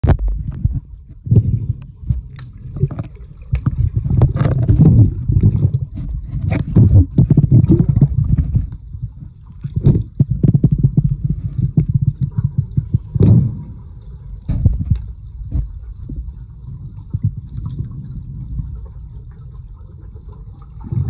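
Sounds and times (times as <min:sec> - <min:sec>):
underwater rumbling and sloshing: 0:00.0 - 0:21.0.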